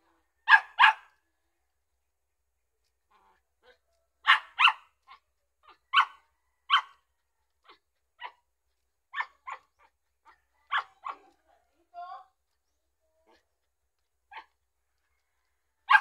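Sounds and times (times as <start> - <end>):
dog barking: 0.4 - 1.2, 3.6 - 7.0, 9.1 - 11.4.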